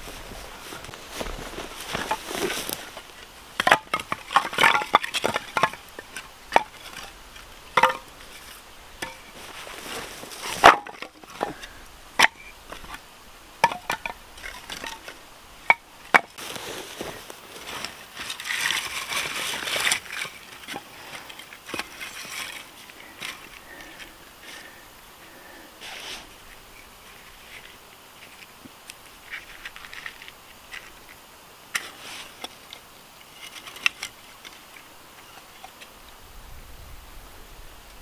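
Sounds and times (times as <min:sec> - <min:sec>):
rustling: 0:00.0 - 0:36.2
wooden boards clattering: 0:03.6 - 0:07.1, 0:07.7 - 0:09.4, 0:10.4 - 0:13.0, 0:13.6 - 0:16.4.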